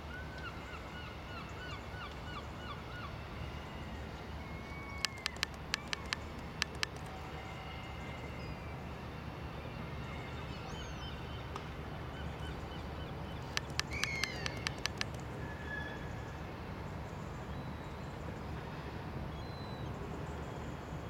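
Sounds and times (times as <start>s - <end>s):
bird calls: 4.4s - 7.1s, 13.3s - 15.3s
sharp clicks: 4.9s - 7.2s, 13.4s - 15.4s.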